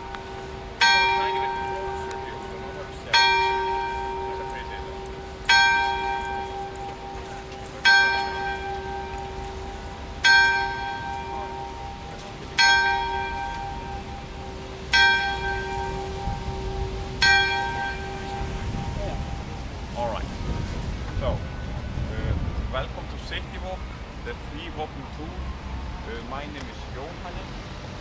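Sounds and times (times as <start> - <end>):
church bell tolling: 0.0 - 24.1.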